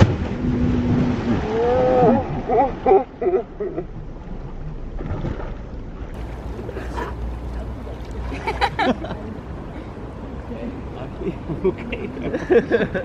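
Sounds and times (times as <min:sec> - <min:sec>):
wind rumbling on microphone: 0:00.0 - 0:02.9
lake water splashing: 0:00.0 - 0:10.5.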